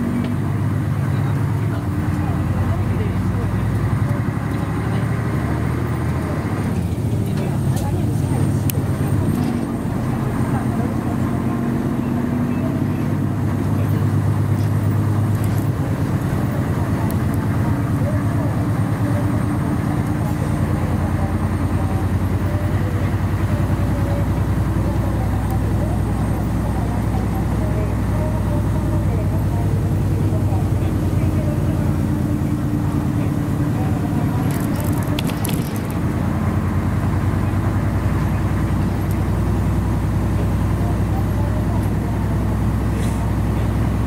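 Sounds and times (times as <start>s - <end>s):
bus engine rumble: 0.0s - 44.0s
road noise: 0.0s - 44.0s.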